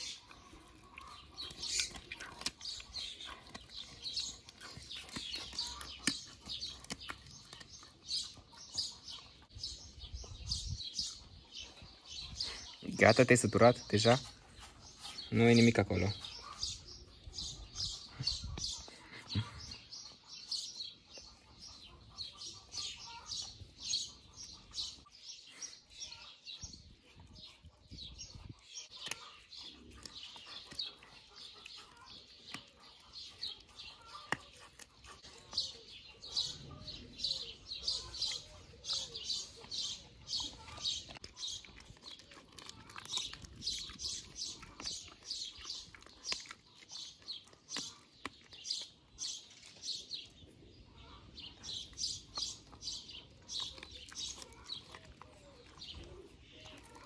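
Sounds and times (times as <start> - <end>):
dog crunching a chew: 0.0 - 9.9, 26.4 - 50.4, 51.6 - 57.0
small birds chirping: 0.0 - 57.0.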